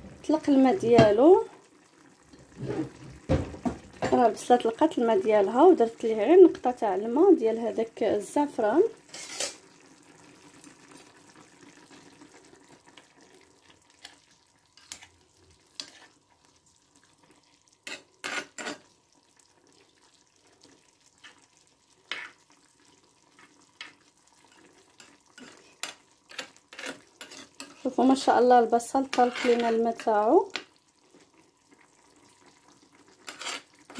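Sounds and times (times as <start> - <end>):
stew sizzling: 0.0 - 33.9
spoon stirring stew: 13.9 - 19.0, 20.6 - 28.3, 28.9 - 33.9.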